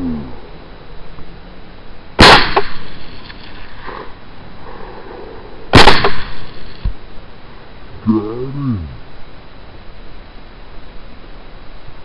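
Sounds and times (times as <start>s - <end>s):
rifle shots with echo: 2.2s - 3.2s, 5.7s - 6.8s.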